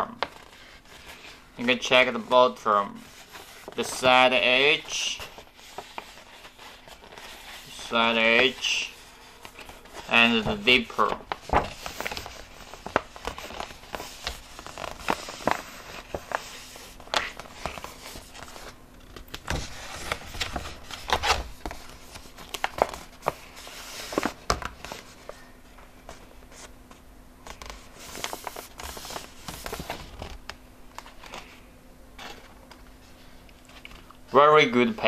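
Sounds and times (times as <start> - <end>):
plastic film crinkling: 3.1 - 25.4.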